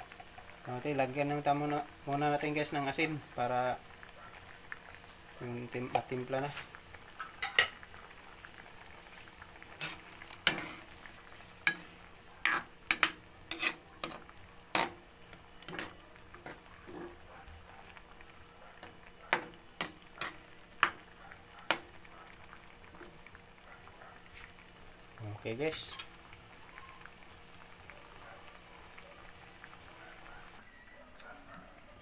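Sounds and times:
broth bubbling: 3.1 - 29.2
metal spatula clanking on wok: 7.4 - 7.8.

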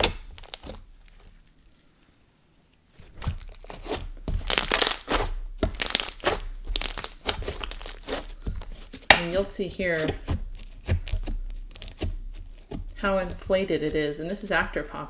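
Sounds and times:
slime crackling and popping: 0.0 - 1.5, 3.0 - 9.4, 10.0 - 13.6.

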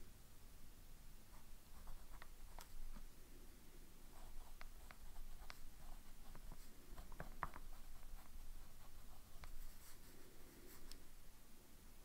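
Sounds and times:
pen scratching on paper: 4.1 - 10.1.

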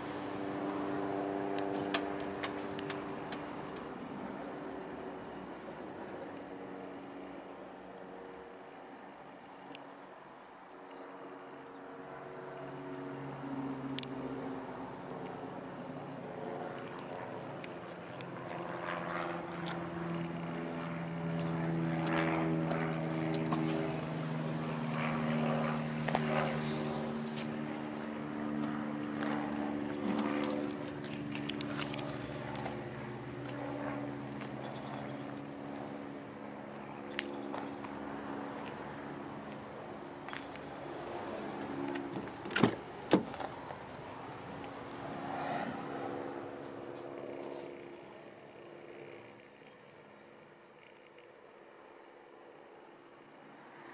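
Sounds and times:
passing traffic noise: 0.0 - 50.0
steady engine drone: 0.0 - 53.9.

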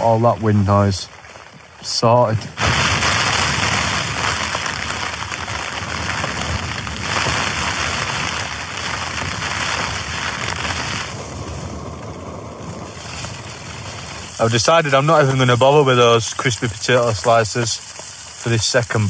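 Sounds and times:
wind buffeting a tent: 2.5 - 15.9
tent fabric flapping: 2.6 - 16.1.

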